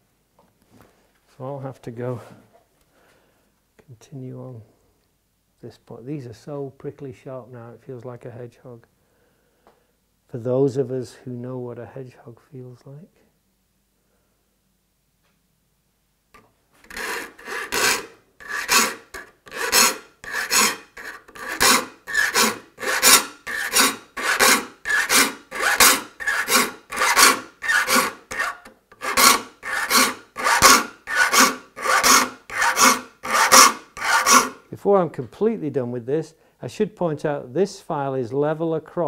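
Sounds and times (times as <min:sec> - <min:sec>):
file rasping on saw teeth: 0:16.8 - 0:34.6.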